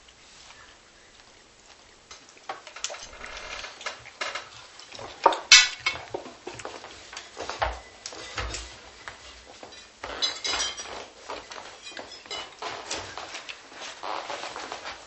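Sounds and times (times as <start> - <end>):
objects being moved: 2.5 - 15.0.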